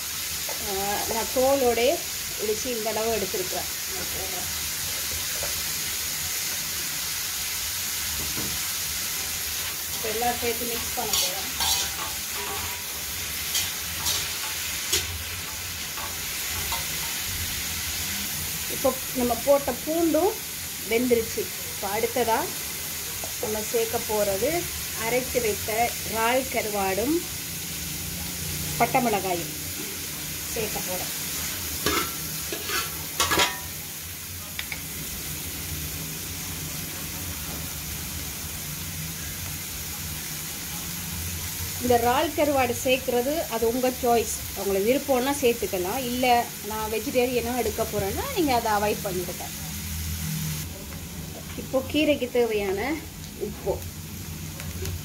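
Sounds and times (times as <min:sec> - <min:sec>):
vegetables sizzling in hot oil: 0:00.0 - 0:55.0
metal spatula scraping wok: 0:09.1 - 0:18.0, 0:30.6 - 0:33.8.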